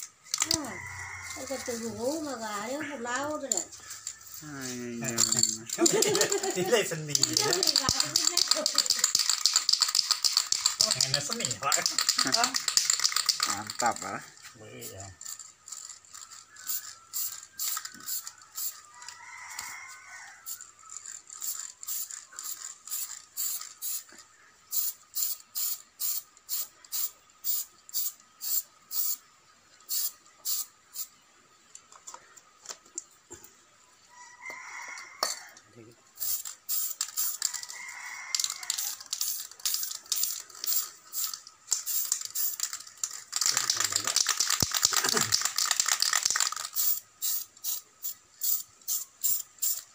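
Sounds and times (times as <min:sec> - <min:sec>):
spray paint can hissing: 0:03.3 - 0:14.2, 0:14.8 - 0:18.9, 0:20.4 - 0:29.2, 0:29.8 - 0:31.1, 0:36.2 - 0:49.9.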